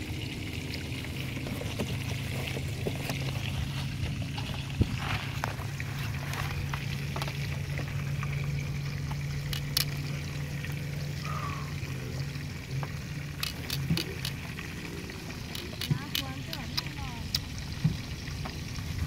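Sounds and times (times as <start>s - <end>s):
fish sizzling in oil: 13.9s - 19.0s.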